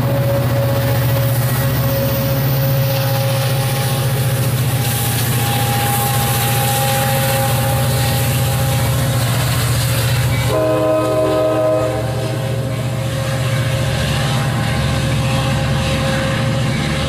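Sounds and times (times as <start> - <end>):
train rolling past: 0.0 - 17.0
train horn chord: 5.1 - 9.5, 10.4 - 17.0.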